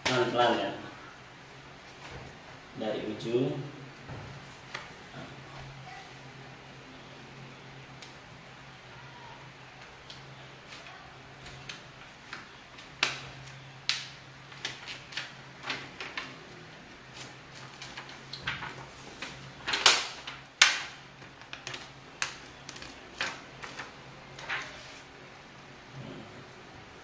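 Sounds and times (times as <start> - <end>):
plastic sheet crackling: 10.1 - 25.2.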